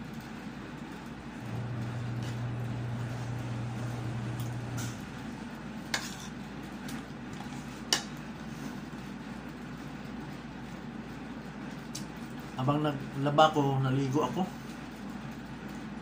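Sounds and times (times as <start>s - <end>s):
low steady hum: 1.1s - 9.8s.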